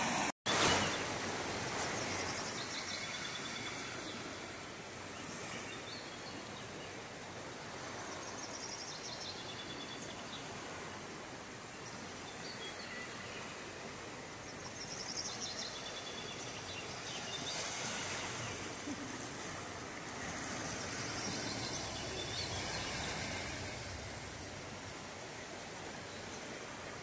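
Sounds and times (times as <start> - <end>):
floodwater rushing: 0.0 - 5.8, 16.9 - 27.0.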